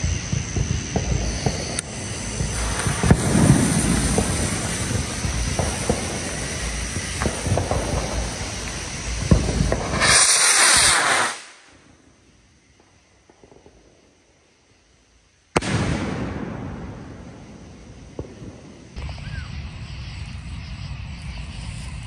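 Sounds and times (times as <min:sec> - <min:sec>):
fuse sputtering and crackling: 0:00.0 - 0:11.1
rocket launch whoosh: 0:00.6 - 0:11.7
firework bang with echo: 0:02.4 - 0:11.5, 0:15.6 - 0:19.0.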